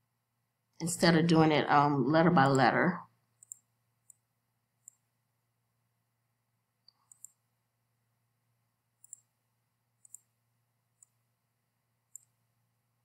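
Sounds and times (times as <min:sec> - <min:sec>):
faint computer mouse clicks: 0:03.4 - 0:04.2, 0:04.8 - 0:05.0, 0:06.8 - 0:07.4, 0:09.0 - 0:09.3, 0:10.0 - 0:10.3, 0:12.1 - 0:12.4.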